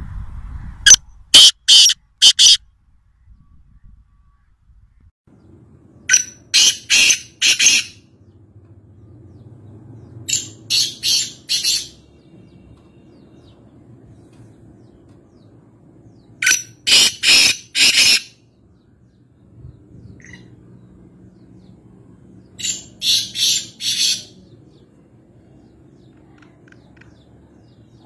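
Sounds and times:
bird harsh calls: 0:01.4 - 0:02.6, 0:06.1 - 0:08.1, 0:10.2 - 0:13.6, 0:16.2 - 0:19.2, 0:22.4 - 0:24.8.

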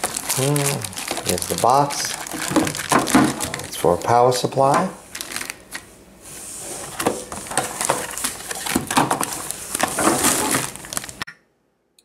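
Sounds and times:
plastic packaging crinkling: 0:00.0 - 0:05.8, 0:06.8 - 0:11.2.

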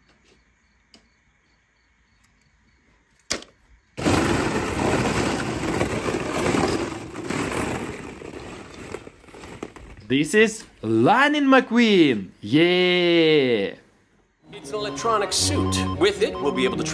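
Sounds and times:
plastic balls clattering: 0:03.4 - 0:10.4.

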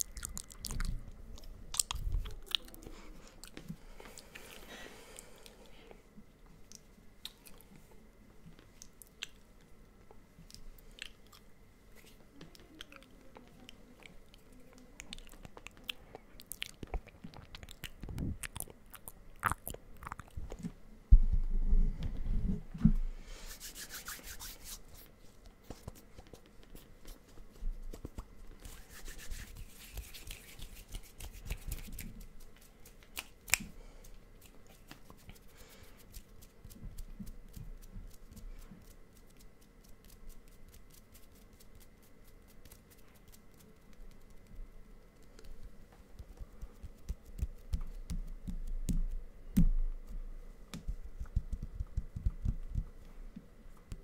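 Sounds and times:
hands rubbing together: 0:23.4 - 0:25.1, 0:25.8 - 0:33.6.

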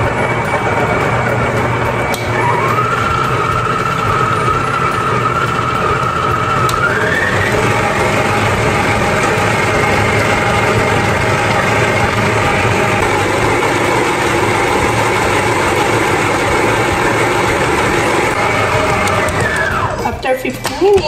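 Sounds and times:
stand mixer motor running: 0:00.0 - 0:20.2
mixer motor whine: 0:00.0 - 0:20.3
mixer click: 0:02.1 - 0:03.4, 0:06.5 - 0:07.5, 0:13.0 - 0:19.8.

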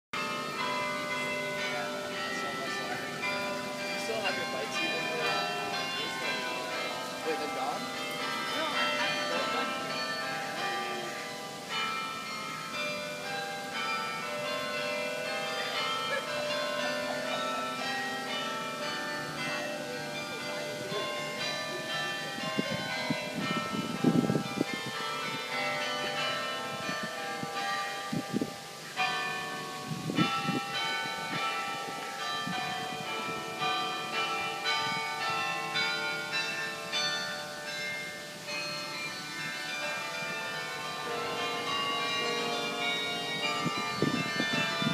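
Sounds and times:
carillon bells playing a tune: 0:00.2 - 0:44.9.

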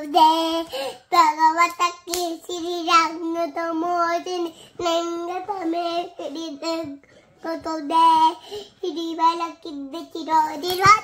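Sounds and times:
girl singing: 0:00.0 - 0:11.0.

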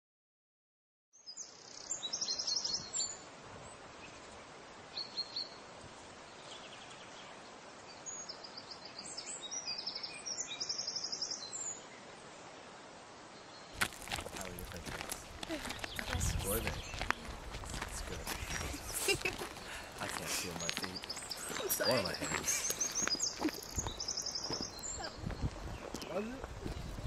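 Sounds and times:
steady outdoor hiss: 0:01.2 - 0:27.0
songbirds trilling: 0:13.5 - 0:27.0.

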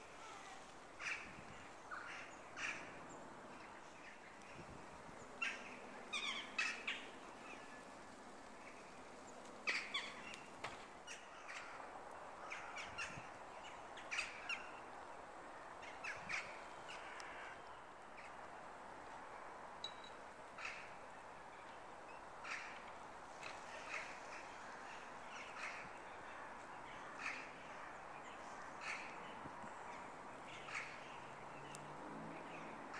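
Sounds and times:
crows cawing: 0:16.9 - 0:17.7.

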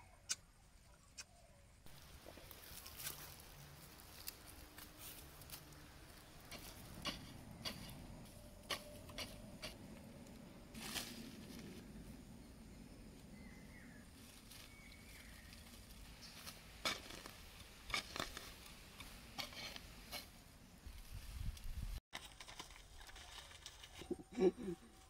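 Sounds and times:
soil and leaves scraping: 0:01.8 - 0:12.4, 0:13.0 - 0:24.4
hoe striking dry soil: 0:06.4 - 0:09.9, 0:16.2 - 0:20.4.

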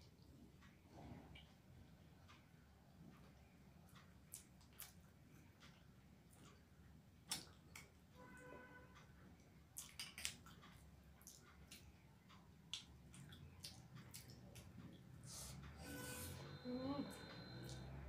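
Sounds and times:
fingers squishing wet rice: 0:09.7 - 0:15.6.

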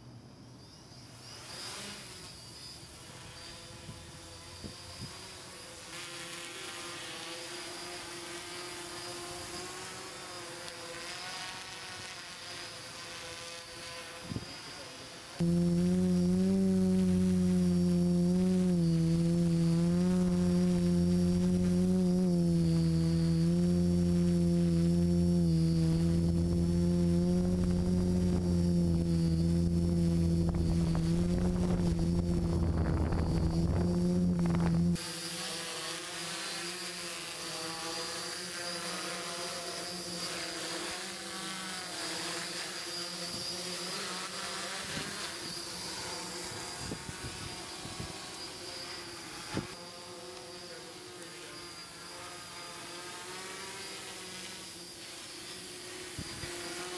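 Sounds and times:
drone propellers buzzing: 0:15.4 - 0:56.9.

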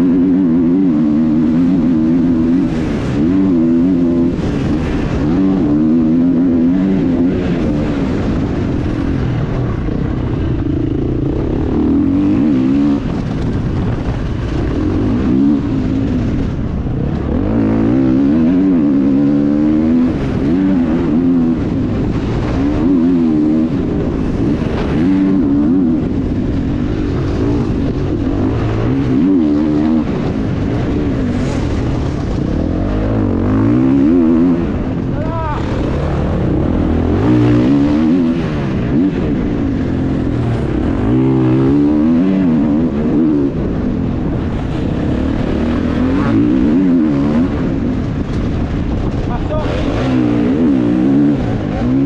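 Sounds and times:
motorbike engine revving: 0:00.0 - 0:52.0.

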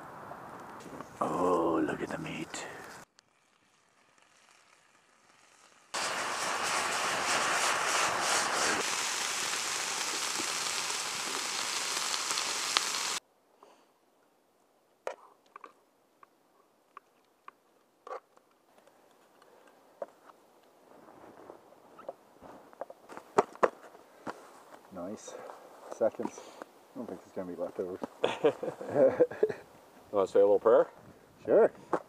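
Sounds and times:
meat sizzling in a pan: 0:03.2 - 0:13.2.

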